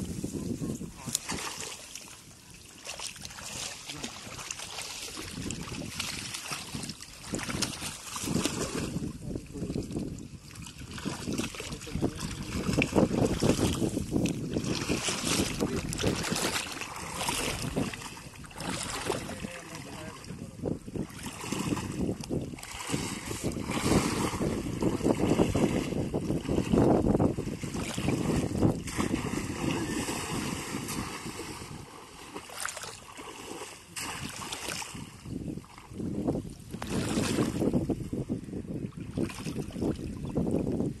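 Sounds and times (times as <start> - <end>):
water sloshing and splashing: 0.0 - 37.9, 38.8 - 40.7
wind on microphone: 0.0 - 41.0.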